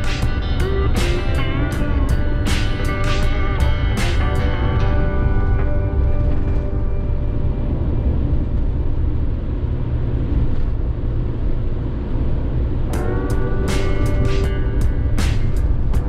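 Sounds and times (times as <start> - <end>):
background music: 0.0 - 9.3, 12.9 - 16.0
engine and tyre rumble: 0.0 - 16.0.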